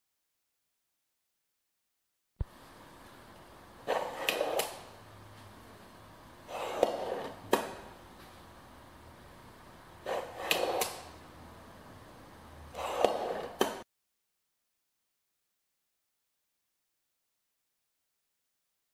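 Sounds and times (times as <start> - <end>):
ball bearing drawer slide rolling: 3.8 - 4.9, 6.5 - 7.9, 10.0 - 11.1, 12.7 - 13.8.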